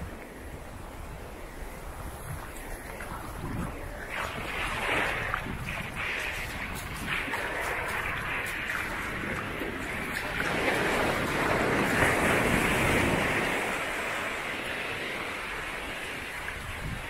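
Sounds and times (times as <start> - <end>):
surf washing up a sandy beach: 0.0 - 17.0.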